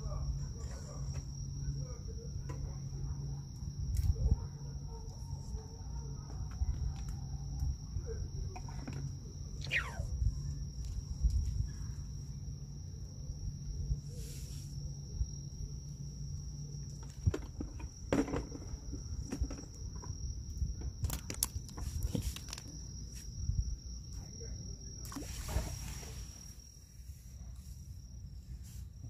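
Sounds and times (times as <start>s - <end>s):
high-pitched insect drone: 9.4s - 11.0s
fishing tackle clicks and rustles: 20.8s - 22.8s.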